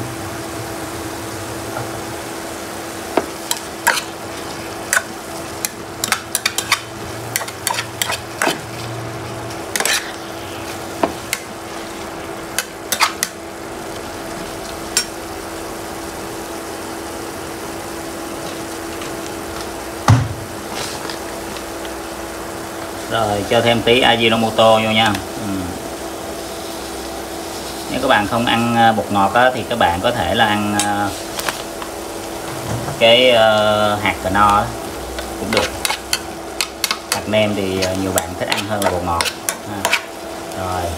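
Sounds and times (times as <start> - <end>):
vegetables sizzling in a pan: 0.0 - 40.9
metal spatula scraping a pan: 6.0 - 8.9, 9.7 - 10.8, 35.4 - 40.2
loud knock: 20.1 - 20.4.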